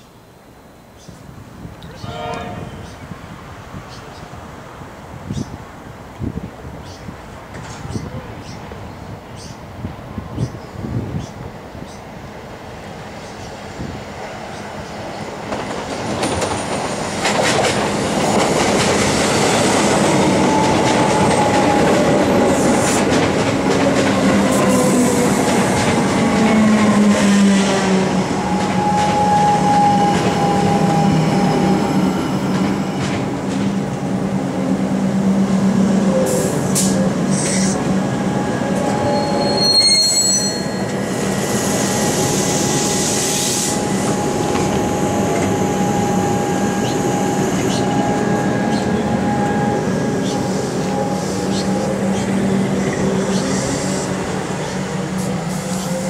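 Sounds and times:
steady train hum: 0:00.0 - 0:56.0
high brake squeal: 0:28.6 - 0:33.0, 0:38.8 - 0:43.8
train traction motors whining: 0:35.5 - 0:56.0.

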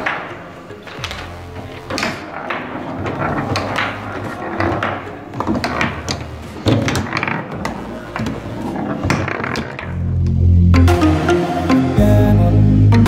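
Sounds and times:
foosball knocks and clacks: 0:00.0 - 0:10.4.

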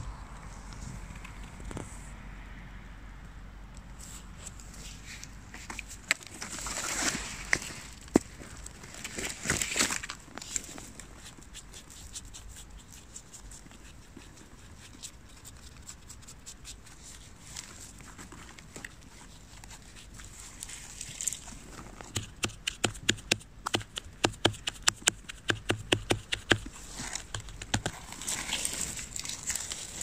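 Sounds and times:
grass and leaves rustling: 0:04.0 - 0:30.0
scrubbing mushroom cap: 0:11.0 - 0:30.0.

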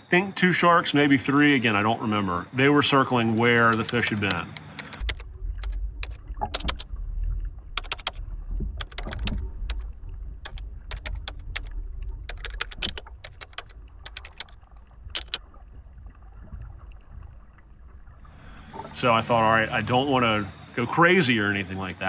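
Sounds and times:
underwater rumble of moving water: 0:01.0 - 0:21.8
sharp clicks and crackles: 0:03.4 - 0:07.0, 0:07.8 - 0:15.5.

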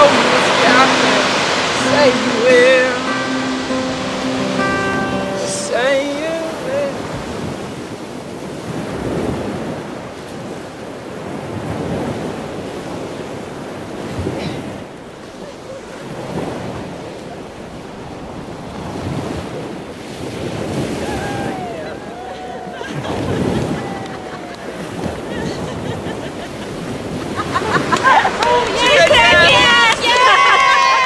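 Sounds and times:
surf breaking on beach: 0:00.0 - 0:31.0
wind buffeting microphone: 0:06.7 - 0:31.0.

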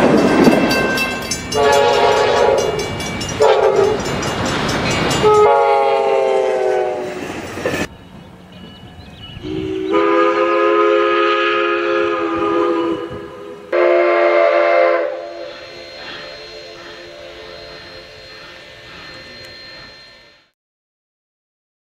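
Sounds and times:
locomotive air horn: 0:01.5 - 0:04.0, 0:05.2 - 0:07.2, 0:09.4 - 0:20.5.

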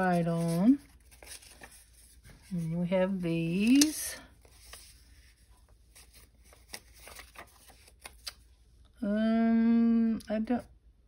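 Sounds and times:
paper pieces rustling: 0:00.0 - 0:02.6, 0:03.4 - 0:05.0, 0:05.9 - 0:08.4.

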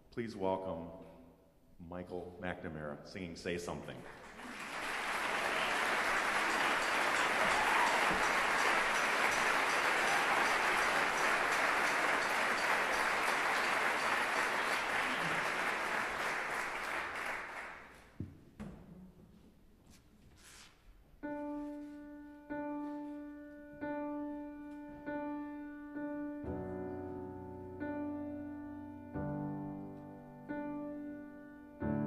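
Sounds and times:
audience applauding: 0:04.1 - 0:18.1.

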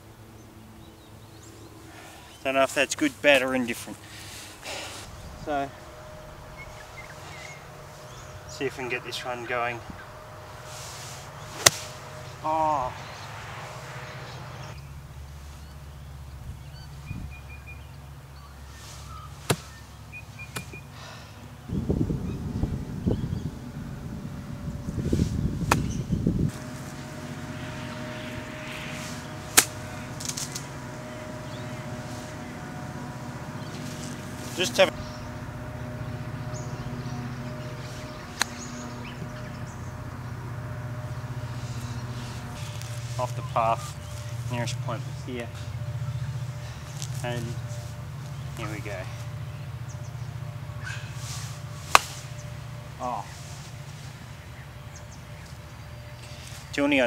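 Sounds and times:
low rough noise: 0:00.0 - 0:56.7
low mechanical hum: 0:00.0 - 0:57.0
bird chirping: 0:00.3 - 0:10.7, 0:11.3 - 0:21.0, 0:21.6 - 0:51.1
golf club swishing: 0:10.7 - 0:12.2, 0:25.0 - 0:34.8, 0:51.2 - 0:52.4
golf club striking ball: 0:11.5 - 0:12.3, 0:19.5 - 0:19.8, 0:25.6 - 0:36.0, 0:38.0 - 0:39.0, 0:51.8 - 0:52.5.

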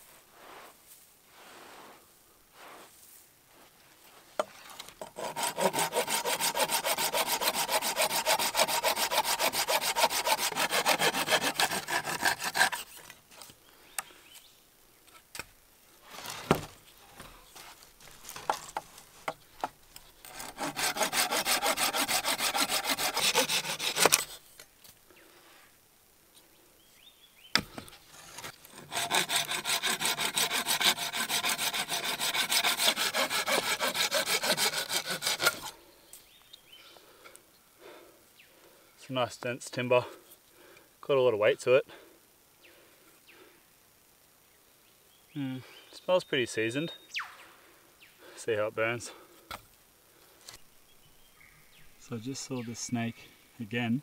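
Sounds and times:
pruning saw cutting branch: 0:05.0 - 0:13.2, 0:20.2 - 0:24.4, 0:27.6 - 0:35.7.

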